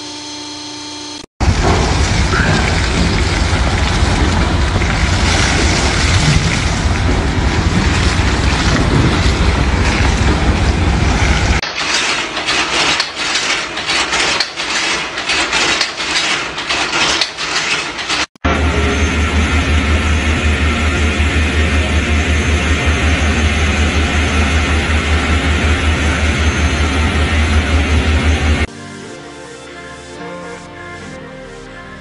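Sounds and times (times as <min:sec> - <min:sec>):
water pouring and splashing: 0:01.4 - 0:18.4
wire-working machine clattering: 0:01.4 - 0:28.7.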